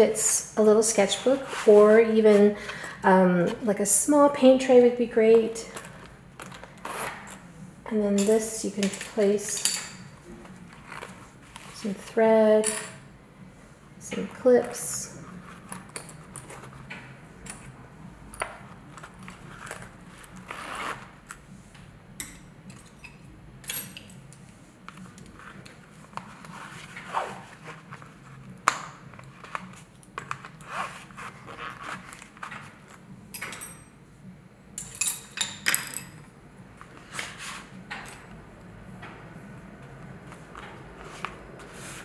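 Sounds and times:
canvas rustling and scraping: 1.1s - 2.6s, 10.2s - 12.1s, 18.8s - 21.2s, 24.6s - 28.4s, 29.1s - 32.9s, 36.8s - 37.8s, 40.2s - 42.0s.

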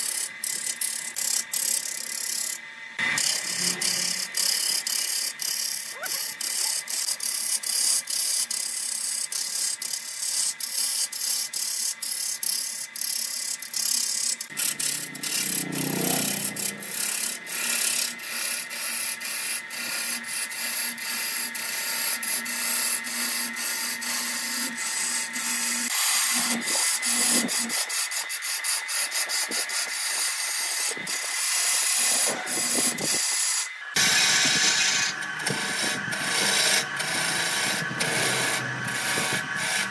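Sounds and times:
wood lathe tool scraping: 0.0s - 39.9s
low hum: 14.6s - 17.6s.

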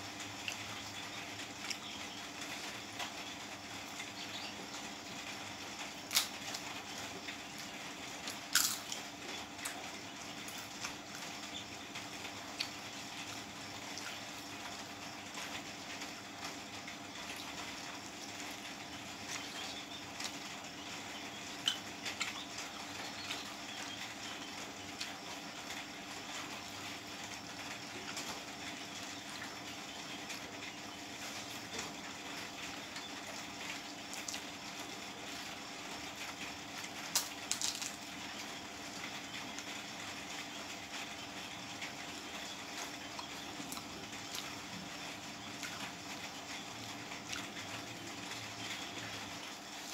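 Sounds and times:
steady low hum: 0.0s - 49.9s
chewing: 8.2s - 9.0s, 47.3s - 47.5s.

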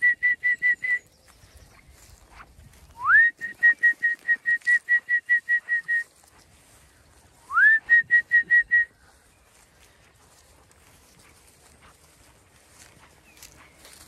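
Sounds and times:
person whistling: 0.0s - 1.0s, 3.0s - 6.1s, 7.4s - 9.0s.

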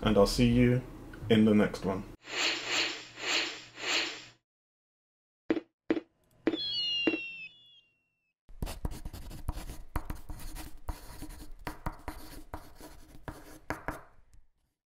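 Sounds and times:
fireworks whistling: 6.5s - 8.1s.

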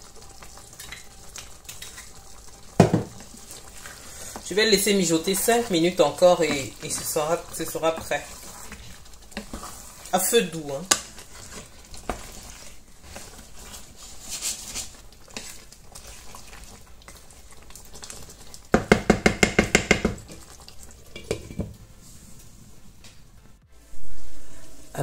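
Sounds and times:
spatula scraping through stew: 3.2s - 18.6s
spatula knocking against pan: 18.8s - 20.2s.

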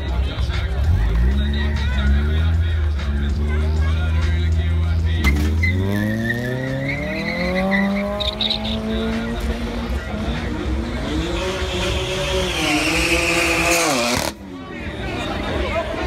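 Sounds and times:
cars accelerating hard: 0.0s - 16.0s
high tyre squeal: 5.2s - 9.3s, 10.0s - 14.4s.

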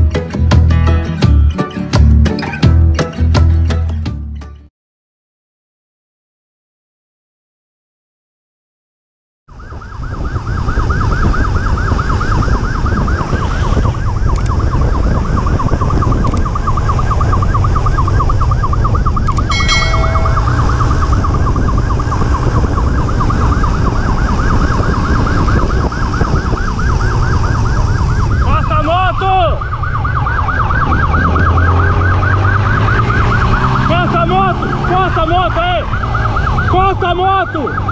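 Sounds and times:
motorcycle siren yelping: 9.5s - 37.9s
wind and engine rumble: 9.5s - 37.9s.

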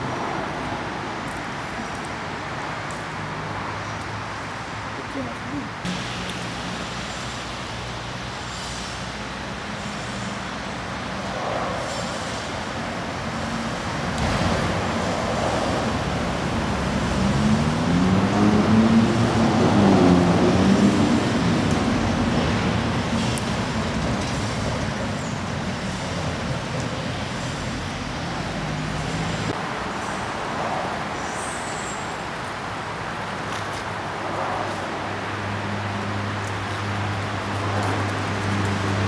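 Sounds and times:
motor vehicle passing: 14.2s - 22.6s.

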